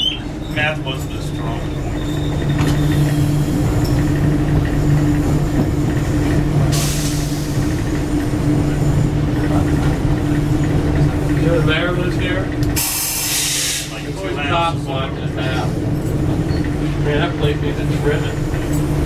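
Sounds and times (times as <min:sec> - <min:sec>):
wheels rumbling on track: 0:00.0 - 0:19.0
air hiss: 0:12.8 - 0:14.0.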